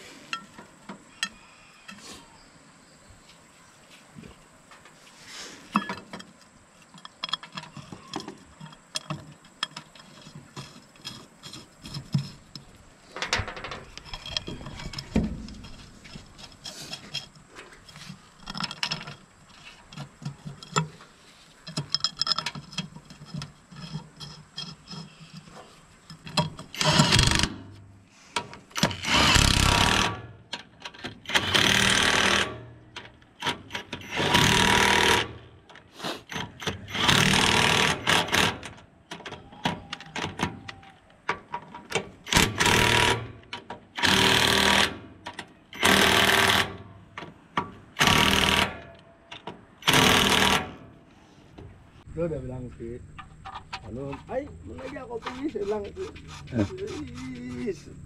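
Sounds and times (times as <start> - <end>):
impact wrench hammering bolts: 21.7 - 27.7, 28.7 - 35.4, 36.3 - 40.8, 41.5 - 50.9.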